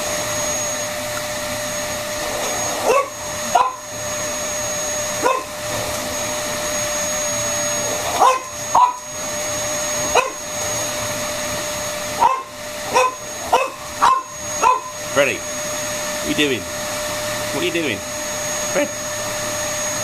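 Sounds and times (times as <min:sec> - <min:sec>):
vacuum cleaner whining: 0:00.0 - 0:20.0
dog barking: 0:02.7 - 0:03.8, 0:05.2 - 0:05.6, 0:08.0 - 0:09.1, 0:10.1 - 0:10.4, 0:12.2 - 0:15.0.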